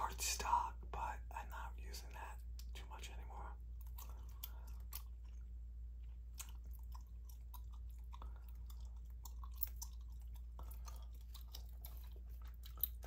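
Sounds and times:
steady low hum: 0:00.0 - 0:13.0
gum chewing: 0:03.6 - 0:13.0.

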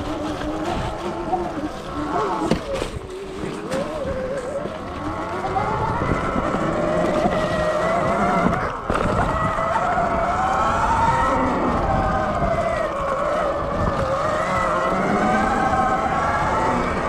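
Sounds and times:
electric motor whining: 0:00.0 - 0:17.0.

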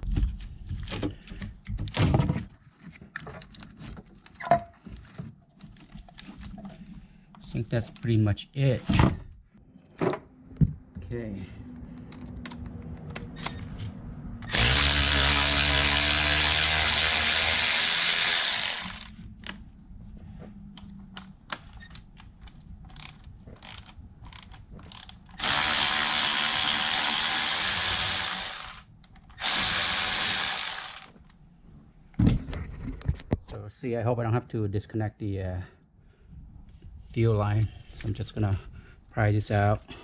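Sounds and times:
cordless ratchet whining: 0:14.4 - 0:19.2, 0:22.9 - 0:31.1.

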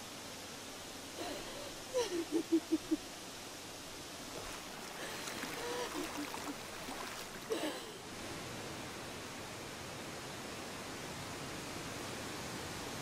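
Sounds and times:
woman sobbing: 0:01.2 - 0:03.0, 0:05.0 - 0:06.6, 0:07.5 - 0:08.0.

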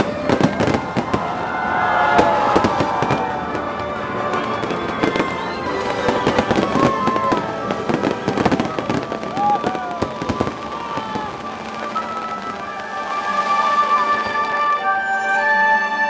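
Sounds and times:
fireworks bursting: 0:00.0 - 0:14.9
gliding whistling tones: 0:04.2 - 0:07.5, 0:10.7 - 0:16.0.

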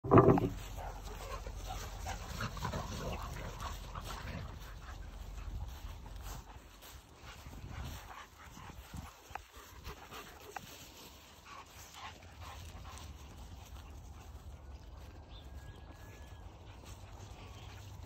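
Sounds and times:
dog noises: 0:00.1 - 0:18.0
paws scuffing on grass: 0:00.2 - 0:18.0.

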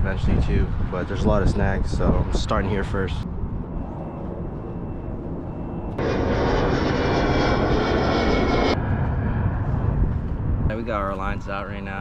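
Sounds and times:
airplane engine noise: 0:01.8 - 0:12.0
low rumble: 0:03.2 - 0:11.7.

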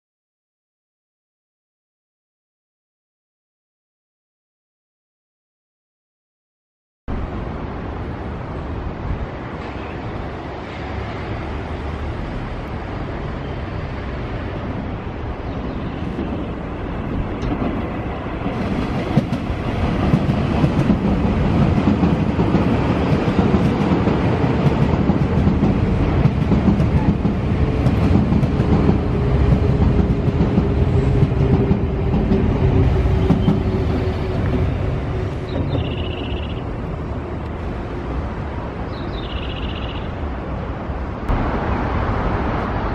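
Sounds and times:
train wheels rumbling: 0:09.3 - 0:38.6.

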